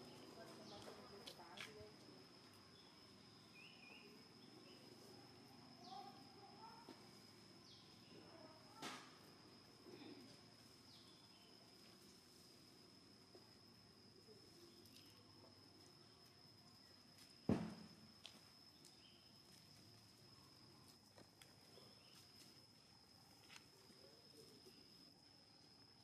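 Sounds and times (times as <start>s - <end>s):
high insect drone: 0.0s - 26.0s
low thump: 17.5s - 17.9s.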